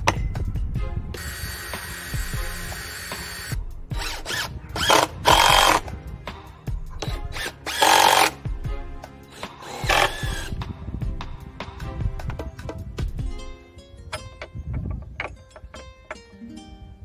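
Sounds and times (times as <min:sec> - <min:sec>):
background music: 0:00.0 - 0:17.0
cordless drill driving screws: 0:01.2 - 0:05.8, 0:07.0 - 0:08.4, 0:09.3 - 0:10.5.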